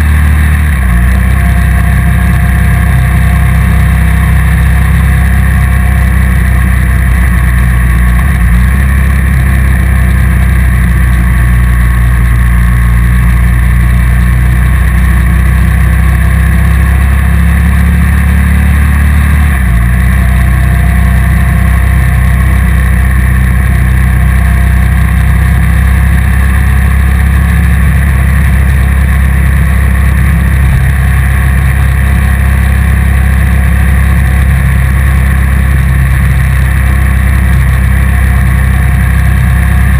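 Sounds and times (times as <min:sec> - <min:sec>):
motorcycle engine cruising: 0:00.0 - 0:39.9.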